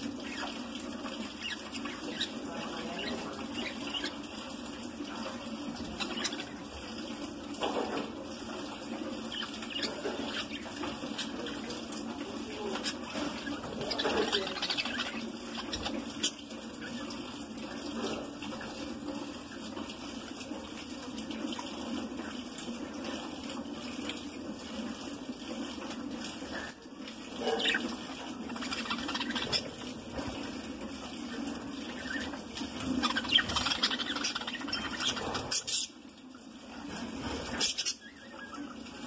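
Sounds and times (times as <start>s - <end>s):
budgerigars chattering and chirping: 12.7s - 16.4s, 32.0s - 35.9s.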